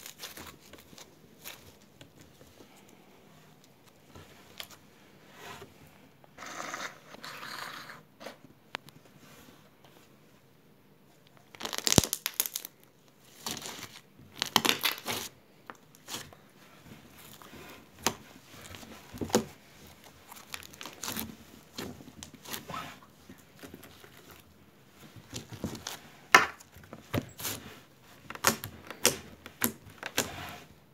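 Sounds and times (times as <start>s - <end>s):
slime squishing and popping: 11.6s - 12.7s.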